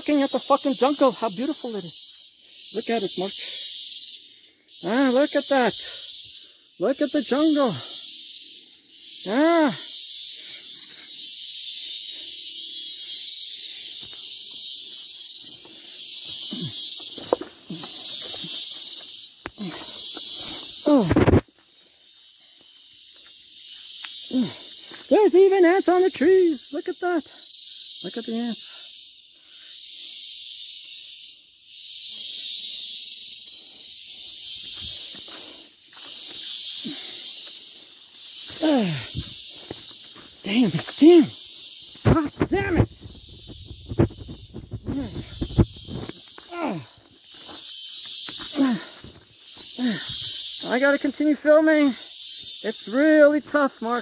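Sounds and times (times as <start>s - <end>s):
insect chorus hissing: 0.0s - 54.0s
footsteps rustling: 15.2s - 19.5s, 34.2s - 36.6s, 37.3s - 41.0s.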